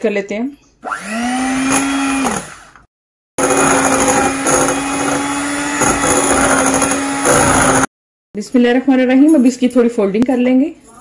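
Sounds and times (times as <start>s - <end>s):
electric hand mixer whirring: 0.8s - 7.9s.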